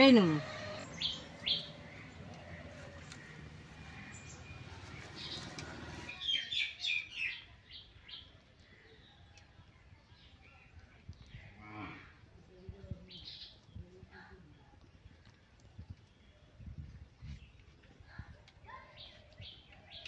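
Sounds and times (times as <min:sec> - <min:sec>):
bird chirps: 0:00.1 - 0:08.3.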